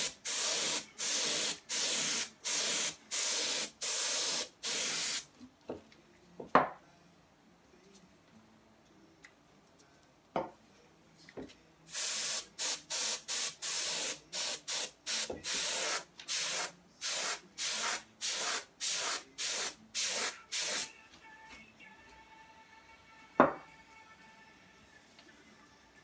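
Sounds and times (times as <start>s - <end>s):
compressed air hissing bursts: 0.0s - 5.3s, 11.9s - 20.9s.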